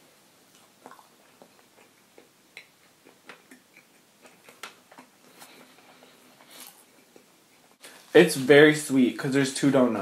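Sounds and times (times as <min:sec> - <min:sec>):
person chewing food: 0:00.5 - 0:08.1.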